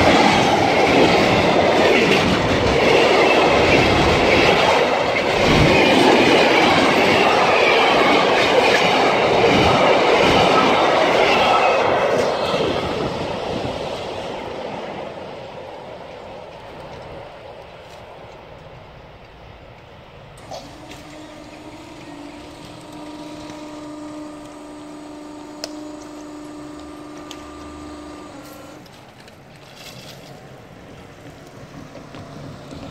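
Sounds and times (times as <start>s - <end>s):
freight train wheels rumbling on rails: 0.0s - 32.9s
barrier motor humming: 20.4s - 29.7s.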